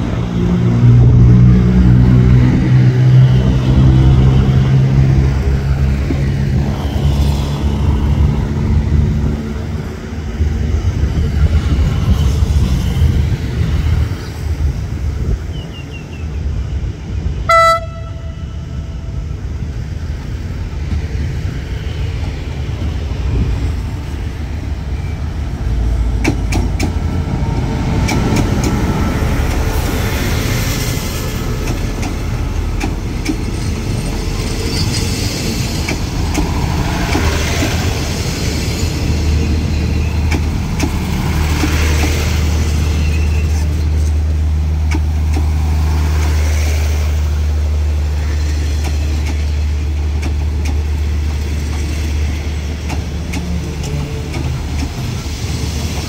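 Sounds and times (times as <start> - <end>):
locomotive engine rumble: 0.0 - 56.0
train horn blast: 17.5 - 19.0
train wheels clicking over rail joints: 25.8 - 47.2, 48.1 - 56.0.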